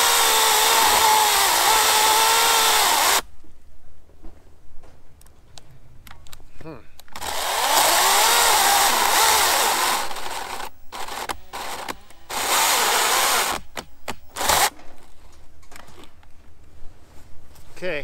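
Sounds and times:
electric chainsaw cutting log: 0:00.0 - 0:03.2, 0:07.2 - 0:14.7.

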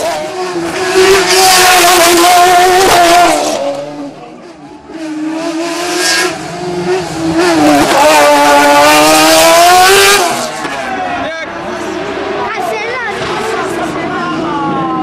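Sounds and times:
race car engine revving: 0:00.0 - 0:10.9.

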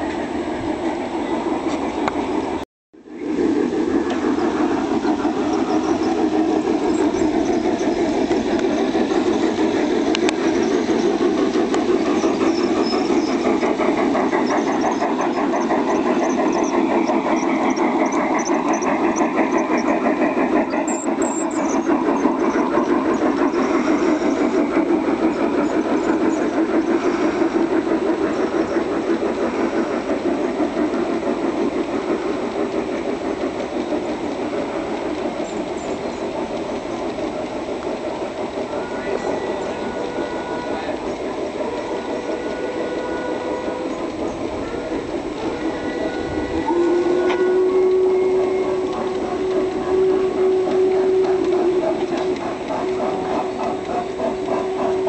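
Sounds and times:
model train rumbling on track: 0:00.0 - 0:55.0.

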